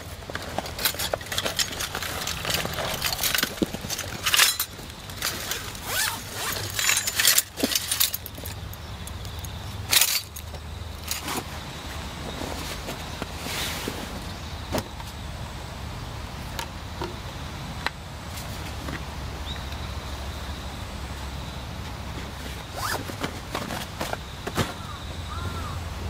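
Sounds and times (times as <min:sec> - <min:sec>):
nylon case rustling and scraping: 0:00.0 - 0:15.2, 0:22.1 - 0:25.0.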